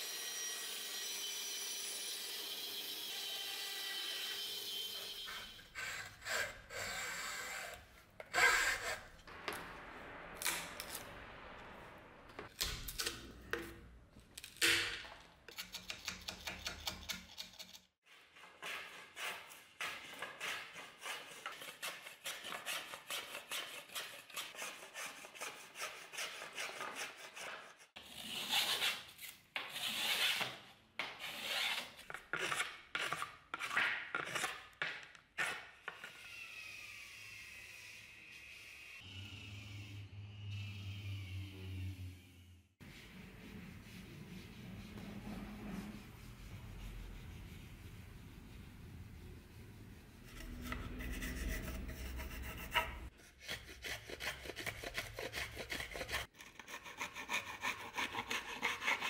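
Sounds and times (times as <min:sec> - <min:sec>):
hacksaw cutting wood: 0:00.0 - 0:09.1, 0:50.4 - 0:59.0
rasp scraping wood: 0:50.2 - 0:59.0.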